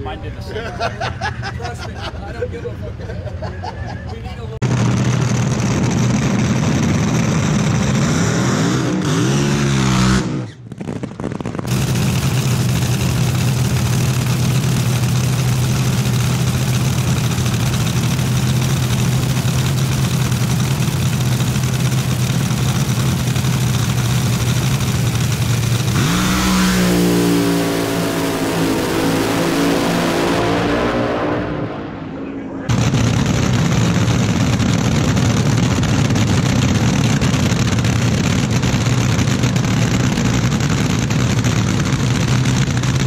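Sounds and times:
dragster engines idling: 0.0s - 8.1s, 10.7s - 30.4s, 31.7s - 43.0s
dragster engine revving: 4.6s - 43.0s.

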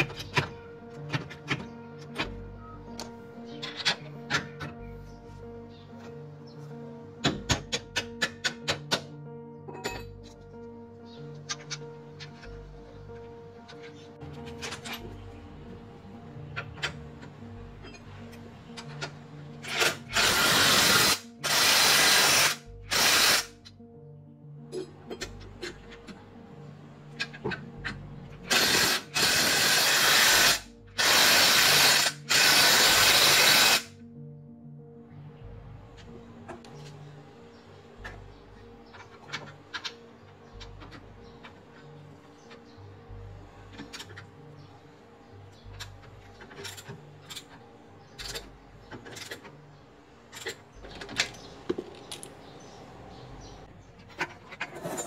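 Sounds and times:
pneumatic impact wrench bursts: 19.7s - 23.5s, 28.5s - 33.9s.

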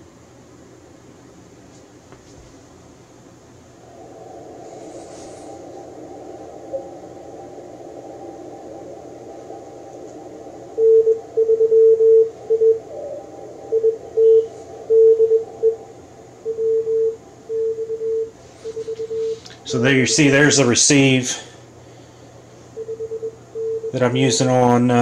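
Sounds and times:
radio receiver hiss: 3.5s - 17.5s, 18.3s - 22.8s
morse code beeps: 10.8s - 13.0s, 13.7s - 15.8s, 16.4s - 19.4s, 22.8s - 24.4s.

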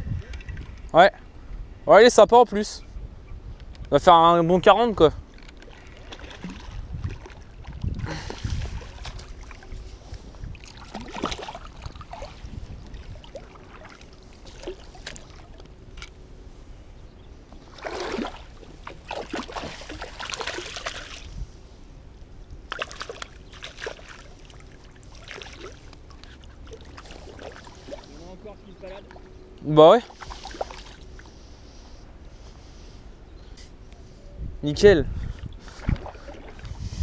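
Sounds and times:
water splashing and sloshing: 5.2s - 16.8s, 17.4s - 21.8s, 22.4s - 31.4s, 35.2s - 37.0s.

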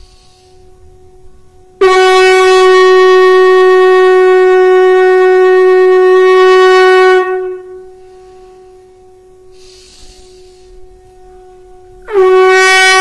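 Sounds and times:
conch shell horn blowing: 0.0s - 13.0s.

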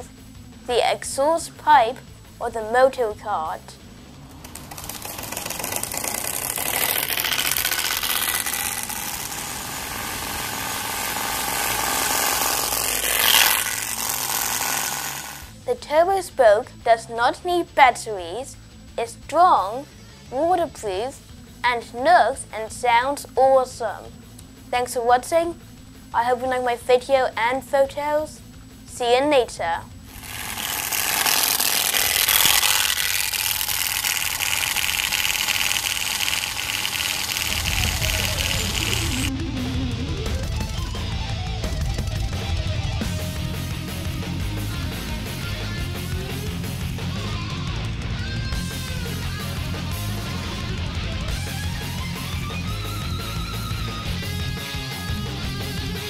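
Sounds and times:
buzzing rattle from bicycle spokes: 3.8s - 15.7s, 30.0s - 56.0s.

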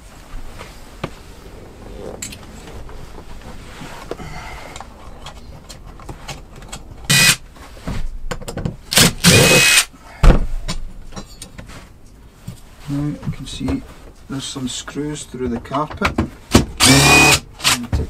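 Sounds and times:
cordless drill spinning: 7.1s - 7.4s, 8.9s - 9.9s, 16.8s - 17.8s
thump: 10.2s - 10.8s.

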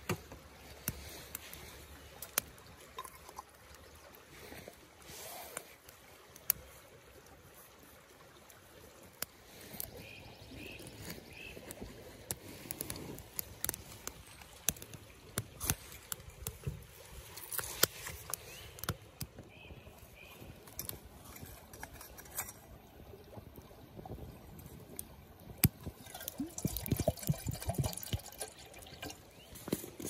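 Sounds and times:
wood fire crackling and popping: 0.0s - 3.8s, 10.6s - 22.8s, 24.0s - 30.0s.

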